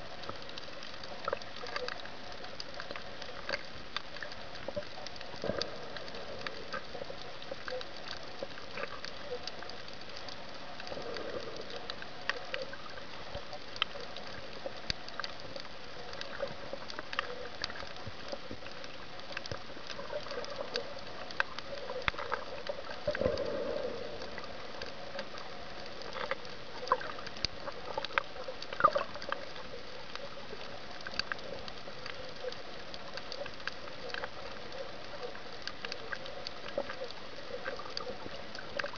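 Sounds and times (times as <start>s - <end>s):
sharp underwater clicks and crackles: 0.0s - 38.9s
underwater hiss: 20.2s - 27.2s.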